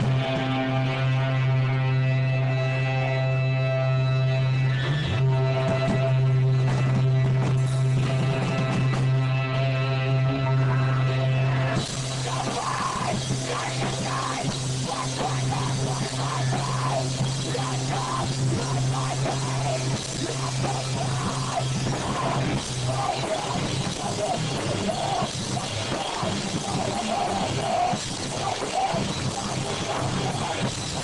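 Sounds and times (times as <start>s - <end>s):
electric guitar: 0.0s - 31.0s
drum kit with cymbals: 11.8s - 31.0s.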